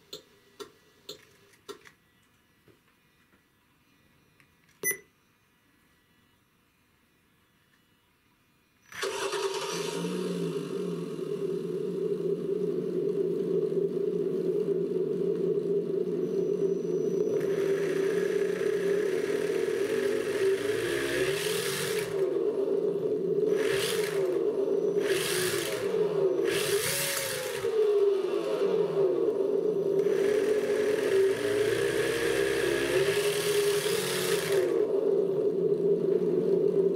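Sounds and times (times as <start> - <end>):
simulated car engine from speaker: 8.9 - 36.9.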